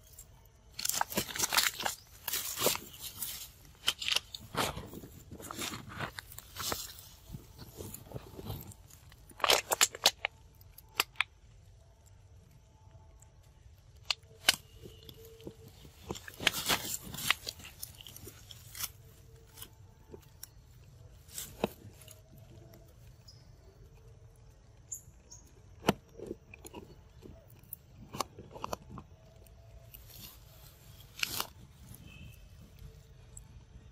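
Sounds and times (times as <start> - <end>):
rustling vines: 0.0 - 10.4, 14.3 - 23.8, 29.6 - 33.5
monkey crunching plant stems: 0.0 - 11.3, 13.9 - 24.1, 24.9 - 33.5.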